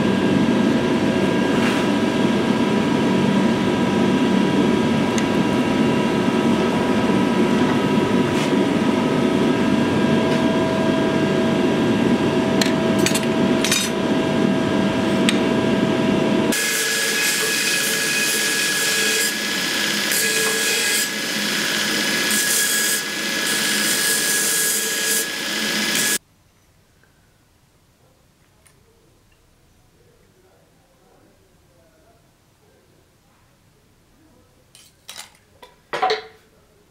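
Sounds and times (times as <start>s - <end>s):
belt grinder grinding steel: 16.5s - 26.2s.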